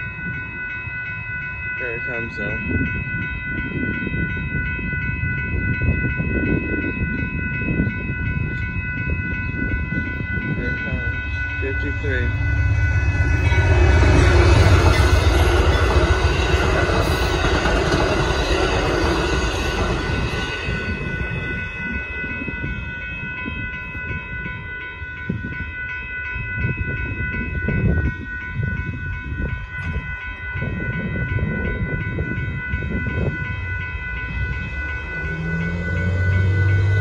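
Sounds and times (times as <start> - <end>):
crossing warning bell ringing: 0.0 - 37.0
train rumbling past: 0.0 - 37.0
car engine: 34.9 - 37.0.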